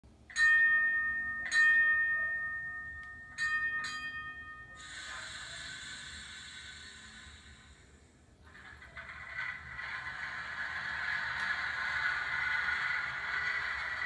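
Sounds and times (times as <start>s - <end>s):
electronic streetcar bell ringing: 0.3s - 5.6s
steady hiss: 4.8s - 8.8s.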